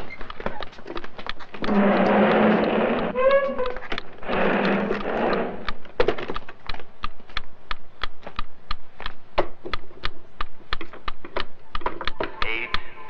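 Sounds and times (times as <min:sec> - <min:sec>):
rapid sharp clicks and taps: 0:00.0 - 0:12.9.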